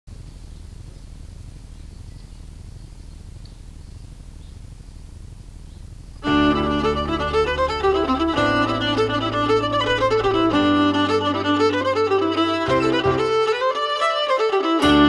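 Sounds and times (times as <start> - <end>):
faint background noise: 0.1 - 13.8
fiddle melody: 6.2 - 15.0
sustained low accompanying notes: 6.2 - 15.0.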